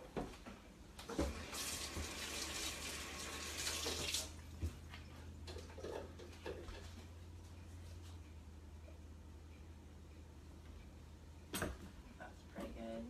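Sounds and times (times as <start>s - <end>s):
faucet water splashing into sink: 1.2s - 4.4s.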